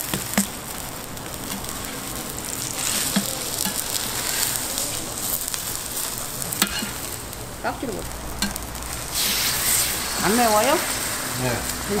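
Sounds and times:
spatula scraping and tapping griddle: 0.0s - 0.6s, 1.5s - 7.1s, 8.4s - 11.1s
pancakes sizzling in oil: 0.0s - 12.0s.

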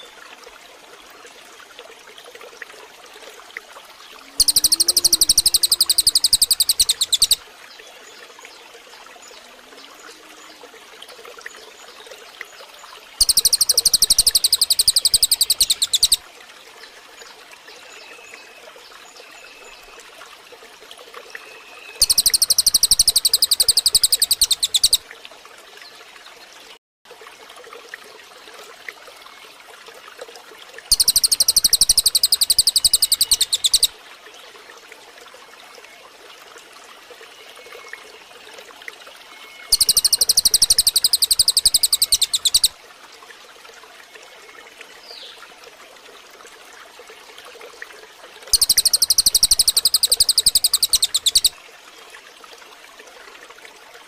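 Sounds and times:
stream water running: 0.0s - 54.0s
songbird trilling: 4.3s - 7.4s, 13.2s - 16.2s, 22.0s - 25.0s, 30.9s - 33.9s, 39.7s - 42.7s, 48.5s - 51.5s
distant bird notes: 4.4s - 7.4s.

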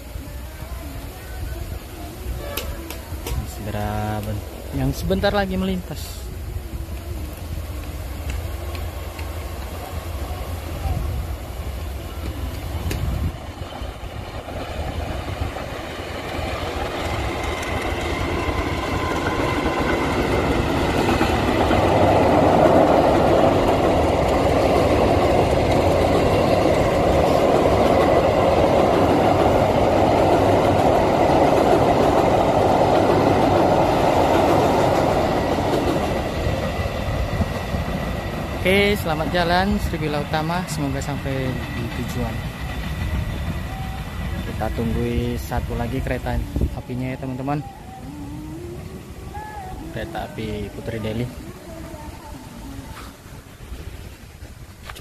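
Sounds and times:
diesel locomotive engine: 0.0s - 55.0s
train wheels rumbling on rails: 0.0s - 55.0s.

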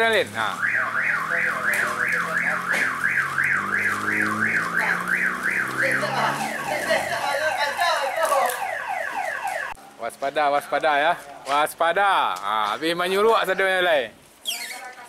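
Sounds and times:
electronic alarm siren wailing: 0.4s - 9.8s.

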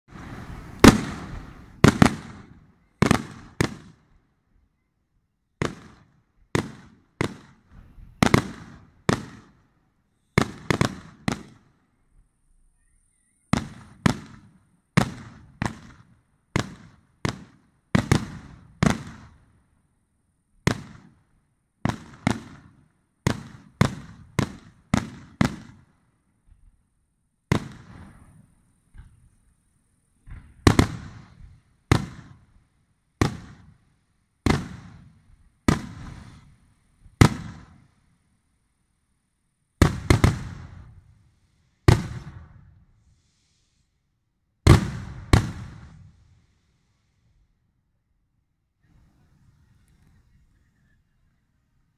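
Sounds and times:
firework shells bursting: 0.1s - 4.0s.

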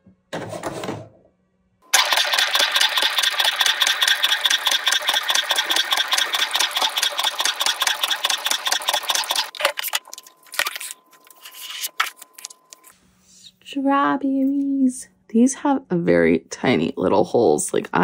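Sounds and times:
cutting machine buzzing: 1.9s - 9.6s
machine clicks: 1.9s - 9.6s.

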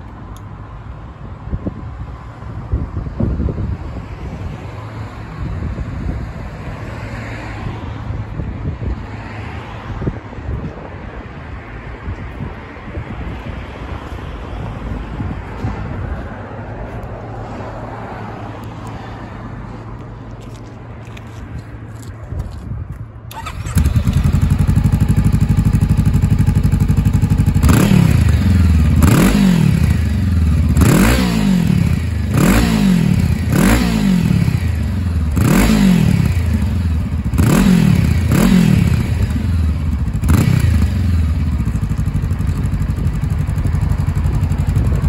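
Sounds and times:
motorcycle engine idling: 23.3s - 30.8s, 36.2s - 45.0s.

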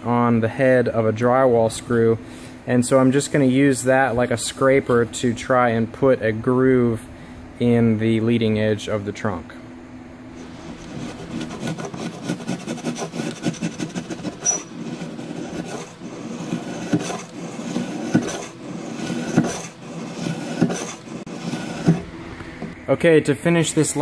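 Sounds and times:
metal scraping wood: 10.4s - 22.8s.

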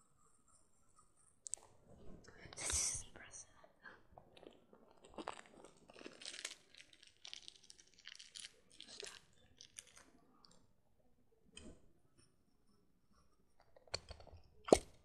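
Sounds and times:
crinkling and crunching: 4.2s - 10.2s.

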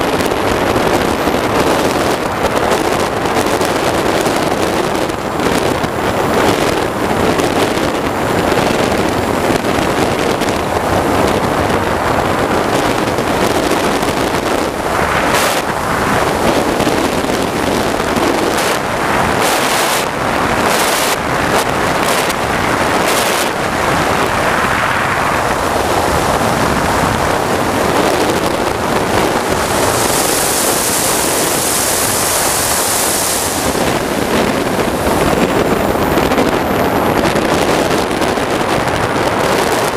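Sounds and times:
jet turbine rushing: 0.0s - 39.9s
wind buffeting microphone: 0.0s - 39.9s
high hiss: 29.4s - 34.3s.

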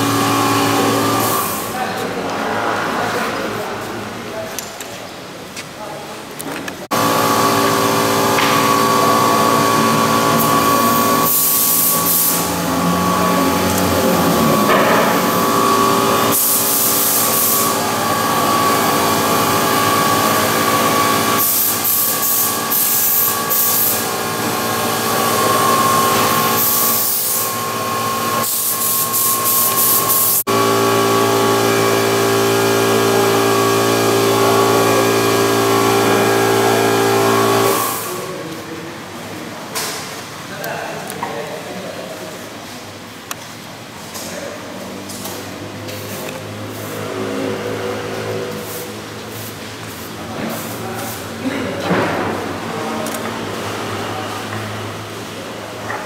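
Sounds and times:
power tool whining: 0.0s - 1.7s, 6.9s - 38.2s.

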